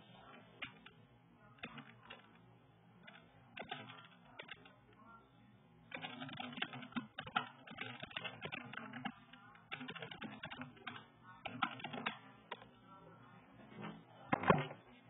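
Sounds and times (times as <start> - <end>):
fast keyboard typing: 1.6 - 2.4, 3.0 - 4.8, 5.9 - 12.7.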